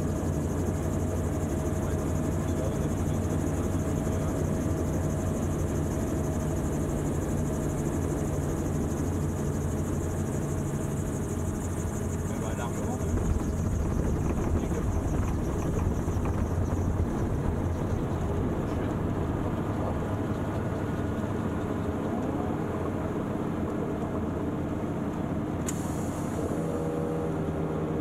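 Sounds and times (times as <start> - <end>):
aircraft engine idling: 0.0 - 26.5
rotor turning: 11.0 - 19.8
wind noise on microphone: 12.8 - 18.7
sharp click: 25.6 - 25.9.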